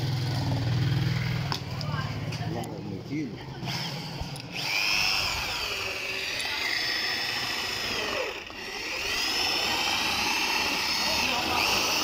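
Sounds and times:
power drill boring into metal: 3.6s - 12.0s.

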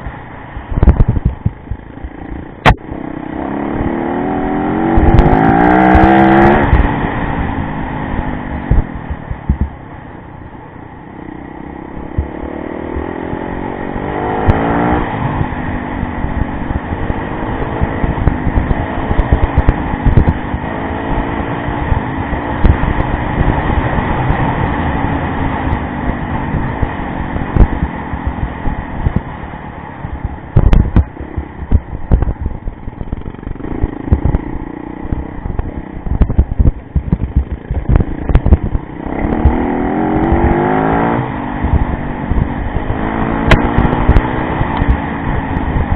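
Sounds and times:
motorcycle engine accelerating: 0.0s - 45.9s
short thumps and knocks: 35.1s - 39.6s.

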